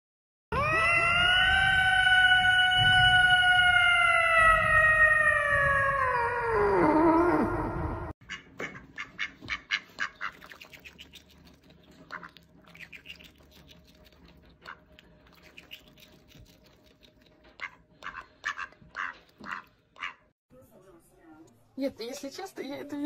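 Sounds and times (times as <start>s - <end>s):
tone sliding down like siren: 0.5s - 8.1s.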